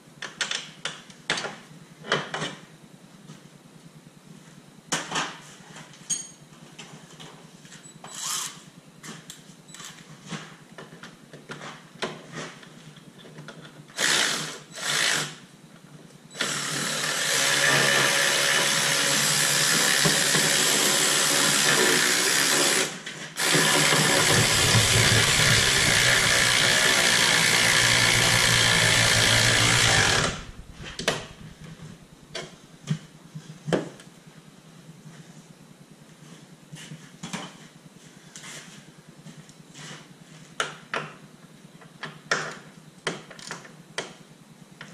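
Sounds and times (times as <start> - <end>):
cordless power tool running: 14.0 - 15.4, 16.4 - 32.0.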